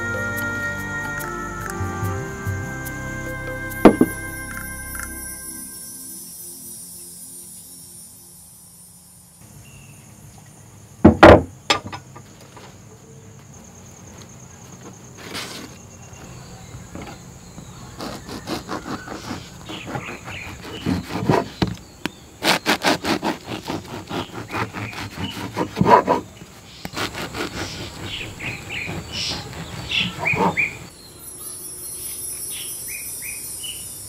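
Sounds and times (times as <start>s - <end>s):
knife sawing through bread: 18.0s - 21.7s, 22.4s - 30.9s
birds chirping: 26.2s - 34.0s.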